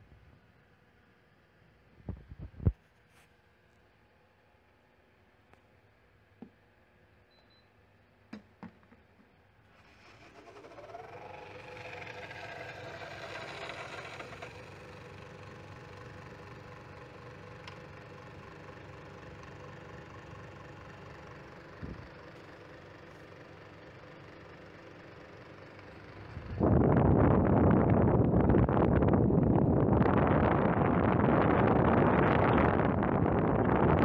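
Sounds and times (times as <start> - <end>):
air conditioner humming: 0.0 - 34.0.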